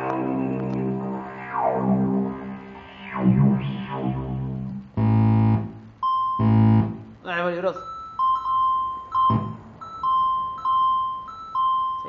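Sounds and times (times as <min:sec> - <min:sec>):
synthesizer falling pitch sweeps: 0:00.0 - 0:07.1
steady bass drone: 0:00.0 - 0:07.2, 0:09.3 - 0:09.8
buzzy synthesizer notes: 0:00.0 - 0:07.5, 0:09.3 - 0:09.8.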